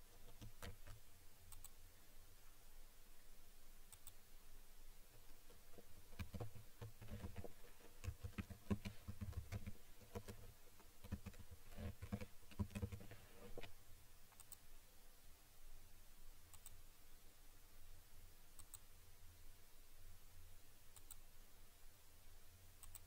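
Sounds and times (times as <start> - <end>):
keyboard typing: 0.2 - 1.8, 5.7 - 13.7, 14.3 - 14.6, 22.8 - 23.0.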